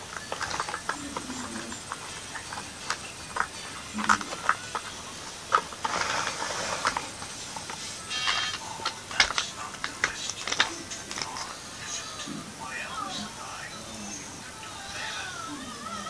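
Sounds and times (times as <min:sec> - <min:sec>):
plastic toys clicking and tapping: 0:00.0 - 0:12.1
toy car scraping: 0:00.0 - 0:12.3.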